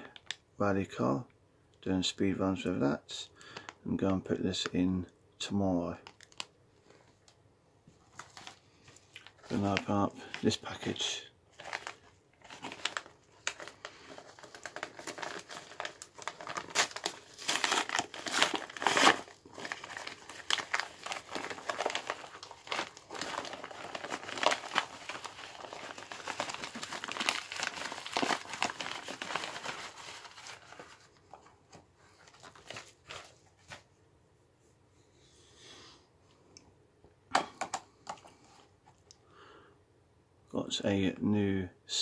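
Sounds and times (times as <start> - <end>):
mailer bag tearing and crumpling: 11.5 - 31.5.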